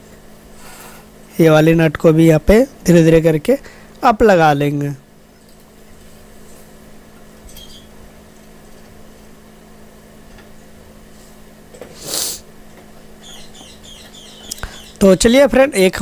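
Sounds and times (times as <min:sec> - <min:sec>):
steady low hum: 0:00.0 - 0:16.0
small bird chirping: 0:13.2 - 0:15.4.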